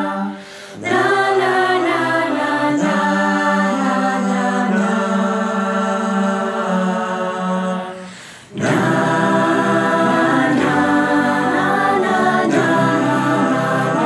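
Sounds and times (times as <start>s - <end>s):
choir singing in harmony: 0.0s - 14.0s.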